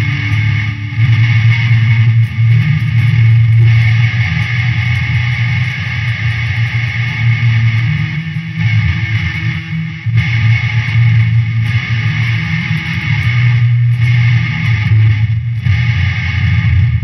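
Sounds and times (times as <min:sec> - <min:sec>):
guitar music with heavy bass: 0:00.0 - 0:17.0.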